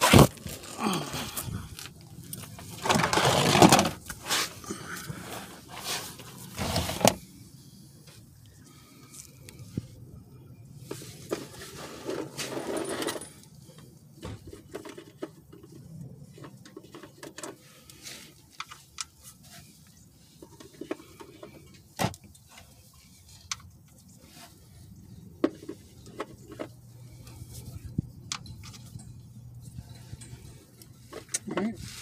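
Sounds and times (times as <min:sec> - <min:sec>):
scraping rustle: 0:02.4 - 0:07.2, 0:10.8 - 0:13.8, 0:14.5 - 0:32.0.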